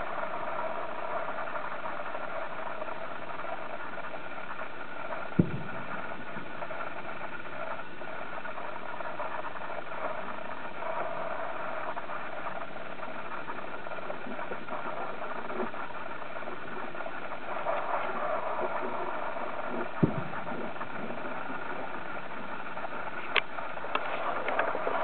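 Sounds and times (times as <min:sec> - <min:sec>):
car engine idling: 0:02.8 - 0:25.0.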